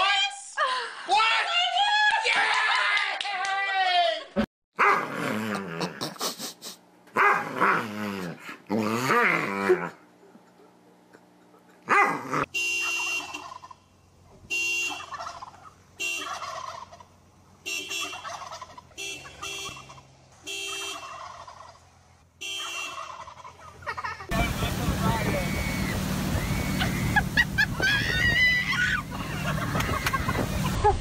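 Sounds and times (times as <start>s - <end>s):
car horn blasts: 12.5s - 13.4s, 14.4s - 15.2s, 16.0s - 16.4s, 17.6s - 18.3s, 18.9s - 21.0s, 22.4s - 23.0s
turkeys gobbling: 12.8s - 13.8s, 14.9s - 17.2s, 17.8s - 21.9s, 22.5s - 31.0s.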